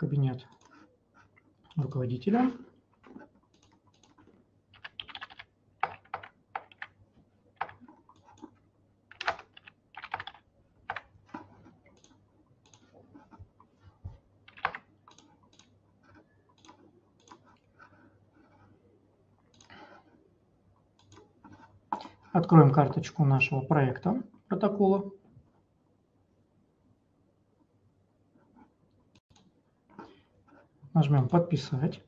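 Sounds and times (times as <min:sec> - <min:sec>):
typing on computer keyboard: 0:03.0 - 0:07.0, 0:07.6 - 0:13.0, 0:14.5 - 0:17.5.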